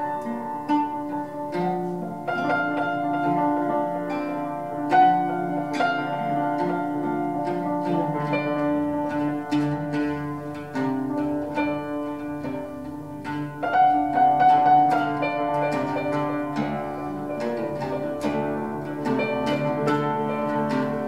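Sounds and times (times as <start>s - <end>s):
piano notes: 0.0s - 21.0s
plucked oud notes: 0.0s - 21.0s.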